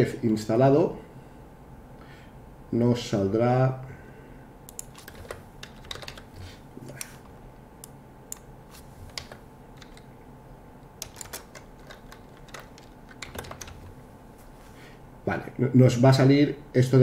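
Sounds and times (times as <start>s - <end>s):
faint low hum: 0.0s - 17.0s
keyboard keys clacking: 4.7s - 6.3s, 11.0s - 13.9s.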